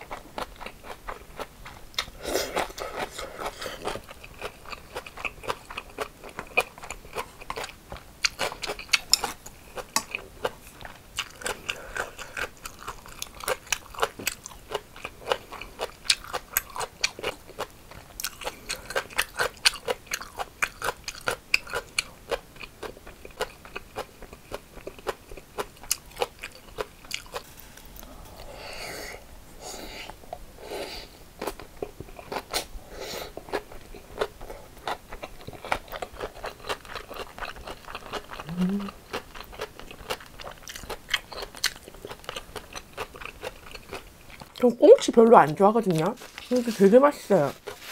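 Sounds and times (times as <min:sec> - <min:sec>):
wet mouth sounds: 0:38.2 - 0:39.2.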